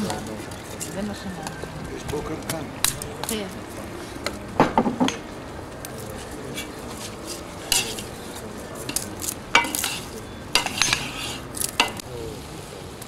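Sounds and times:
metal skimmer scraping pot: 0:07.3 - 0:12.0
sizzling hiss from pot: 0:09.6 - 0:13.0.

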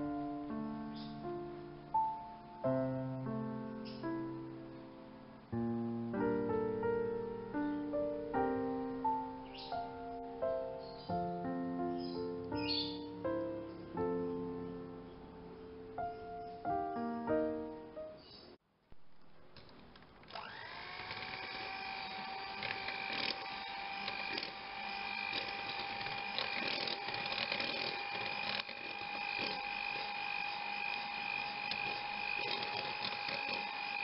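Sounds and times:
electric mixer motor whine: 0:20.3 - 0:34.0.

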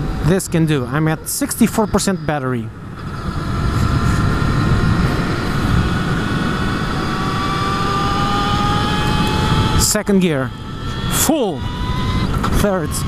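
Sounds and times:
wind rush on camera: 0:00.0 - 0:13.0
electric motor whine: 0:01.2 - 0:13.0.

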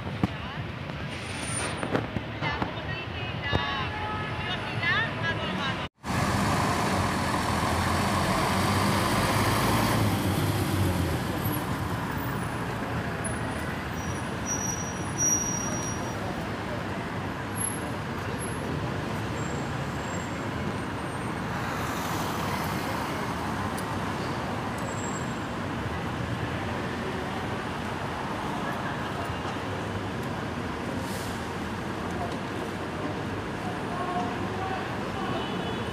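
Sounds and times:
road traffic noise: 0:00.0 - 0:35.9
heavy vehicle passing close: 0:06.0 - 0:12.2.

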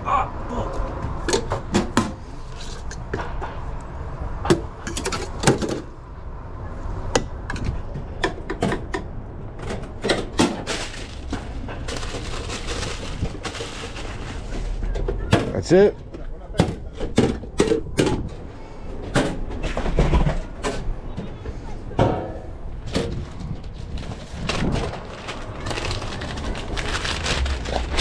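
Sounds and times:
paper crinkling: 0:10.6 - 0:14.8, 0:23.2 - 0:28.0.

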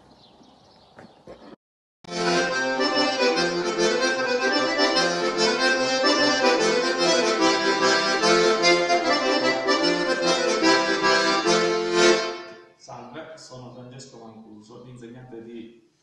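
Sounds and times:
button accordion dance tune: 0:02.1 - 0:12.6.

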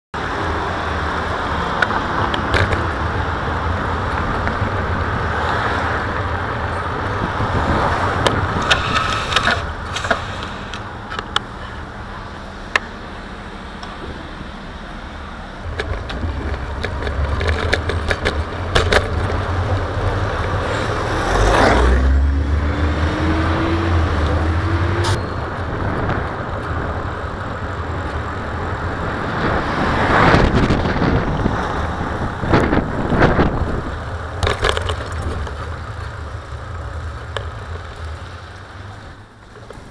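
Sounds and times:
road and traffic noise: 0:00.1 - 0:39.9
sharp clicks and knocks: 0:01.8 - 0:03.0, 0:08.2 - 0:11.5, 0:15.6 - 0:20.6, 0:34.4 - 0:38.2
rising hum: 0:12.4 - 0:27.6
motor vehicle passing close: 0:15.6 - 0:27.0.

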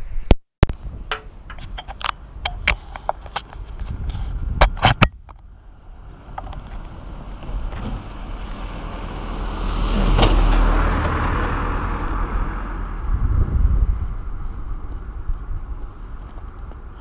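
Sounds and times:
road vehicle passing by: 0:05.5 - 0:17.0.

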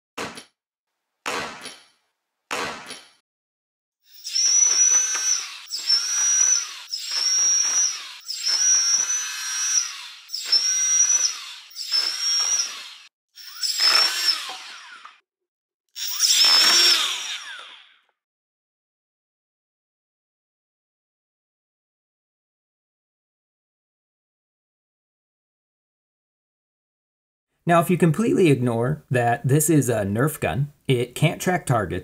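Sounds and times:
flywheel motors whining: 0:04.1 - 0:15.2, 0:16.0 - 0:18.0.

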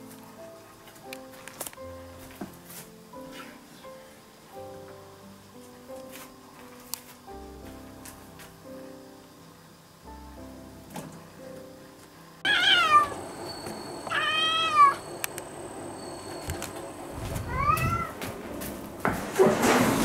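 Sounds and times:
soft background music: 0:00.0 - 0:20.0
cat meowing: 0:12.4 - 0:13.2, 0:14.0 - 0:15.1, 0:17.3 - 0:18.2.

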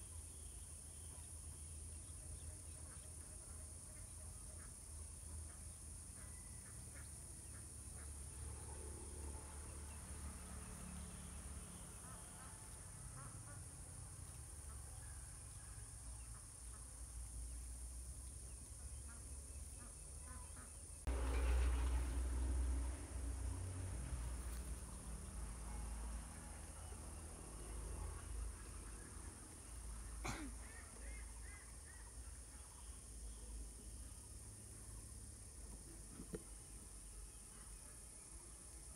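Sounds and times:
steady high-pitched hiss: 0:00.0 - 0:38.9.

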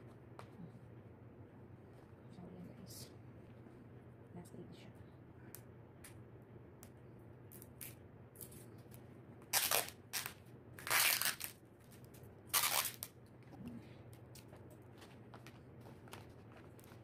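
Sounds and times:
wrapping paper crinkling: 0:09.5 - 0:13.2.

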